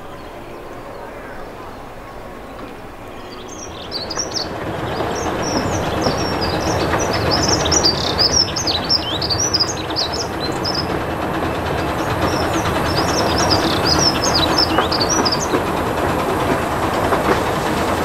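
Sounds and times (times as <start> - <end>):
small birds chirping: 0.0 - 11.1, 11.8 - 15.6
steam train wheels rumbling: 0.0 - 18.0.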